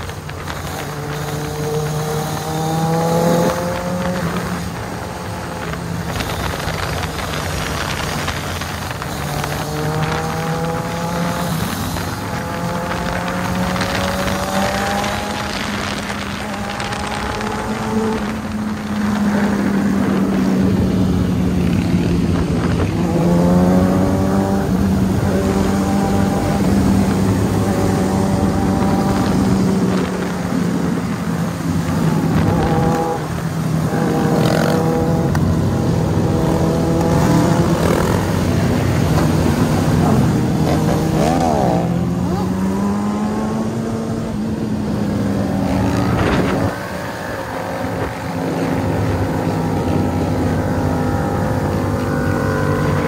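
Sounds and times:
motorcycle engine drone: 0.0s - 53.0s
motorcycle engines revving: 0.0s - 53.0s.

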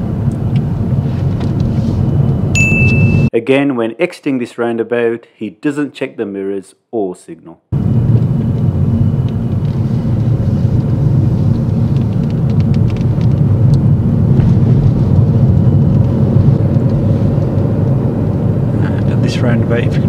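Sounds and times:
car engine and road rumble: 0.0s - 3.3s, 7.8s - 20.0s.

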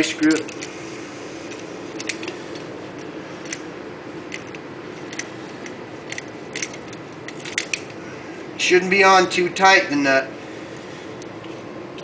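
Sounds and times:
steady low hum: 0.0s - 12.0s
metal-on-metal clicks: 0.2s - 0.8s, 1.5s - 3.7s, 4.3s - 8.0s.

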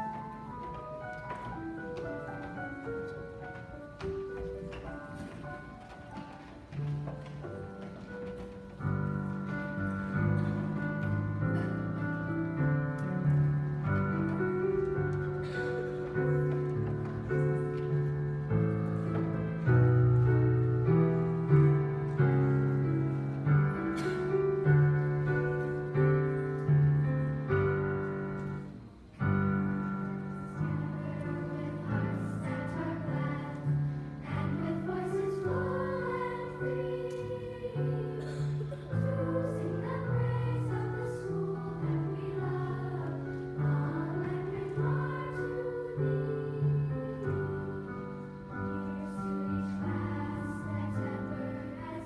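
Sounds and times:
piano playing chords: 0.0s - 52.0s
girls' choir singing: 29.6s - 52.0s.

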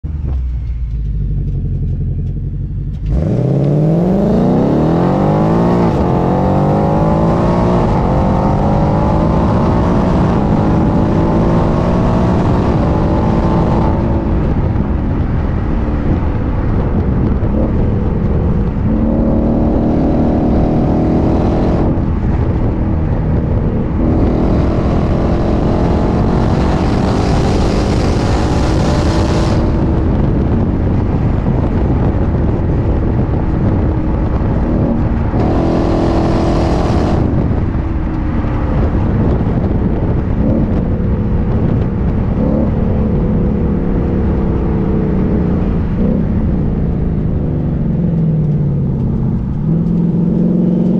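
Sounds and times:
car engine accelerating: 0.0s - 50.9s.

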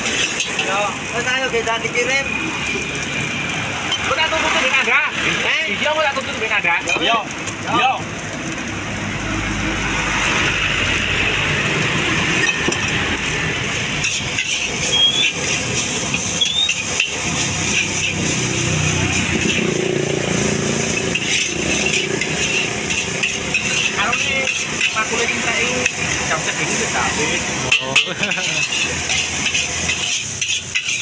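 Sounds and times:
metal spatula scraping a wok: 0.0s - 0.8s, 12.2s - 31.0s
food sizzling: 0.0s - 31.0s
gas burner hissing: 0.0s - 31.0s.

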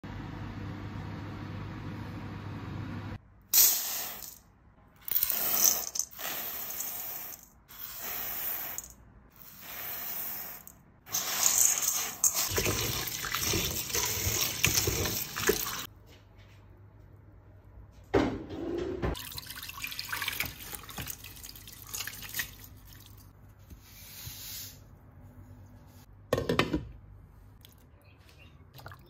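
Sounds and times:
lentils rattling into steel bowl: 5.1s - 7.5s, 10.6s - 15.9s
hand swishing through lentils: 9.5s - 12.6s
tap water running: 11.1s - 15.9s, 19.2s - 23.3s.

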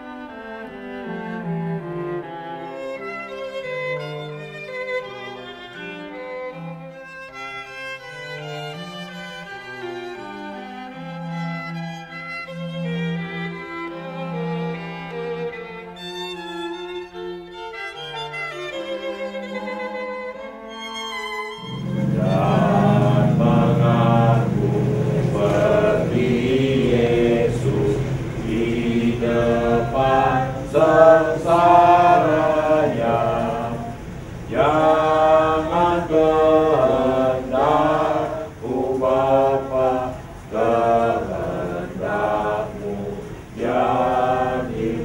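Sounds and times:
slow violin melody: 0.0s - 45.0s
group singing a hymn: 21.6s - 45.0s.

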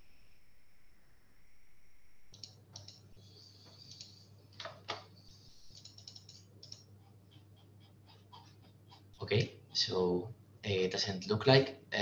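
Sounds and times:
low steady hum: 0.0s - 12.0s
typing on computer keyboard: 5.7s - 6.9s.

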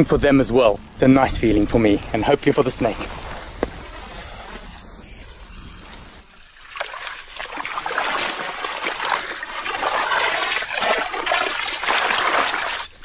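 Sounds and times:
footsteps wading through muddy water: 2.9s - 12.9s
water splashing and trickling: 5.8s - 13.0s.

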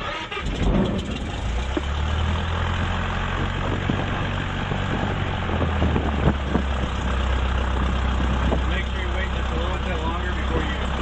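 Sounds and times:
light aircraft engine running: 0.4s - 11.0s.

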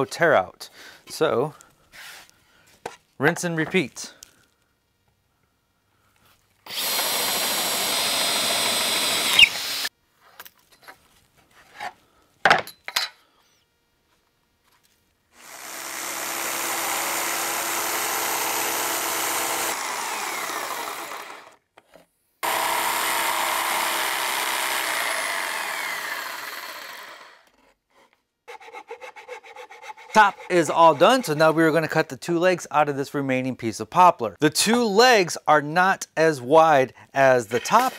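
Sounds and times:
cordless drill boring wood: 6.7s - 9.9s, 15.4s - 21.6s, 22.4s - 27.5s
jigsaw cutting wood: 6.7s - 9.9s, 15.4s - 21.6s, 22.4s - 27.5s, 30.0s - 31.6s.

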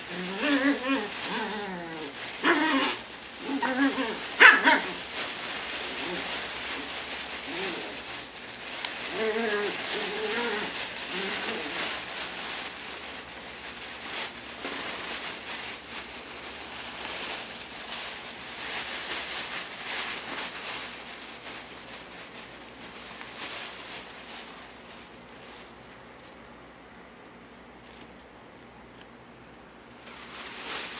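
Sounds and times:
fabric tunnel crinkling and rustling: 0.0s - 26.3s, 29.8s - 30.9s.

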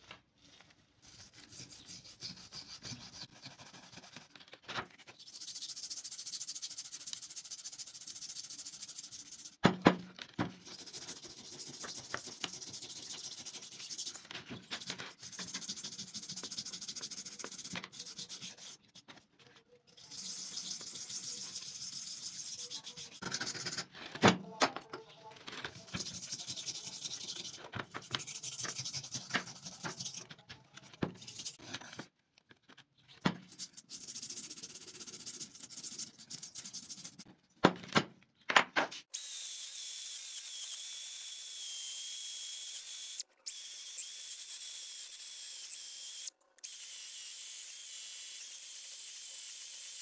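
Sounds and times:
sanding strokes on metal: 5.2s - 9.6s, 20.0s - 23.2s, 25.9s - 30.3s.

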